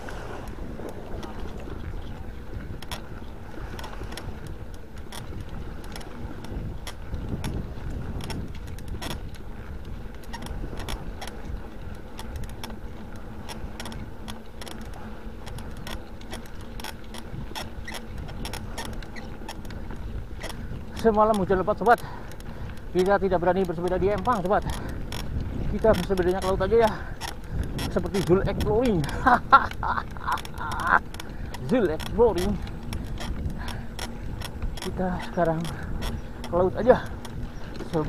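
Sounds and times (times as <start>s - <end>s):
bicycle clicks and rattles: 0.0s - 38.0s
wind rumbling on microphone: 0.0s - 38.0s.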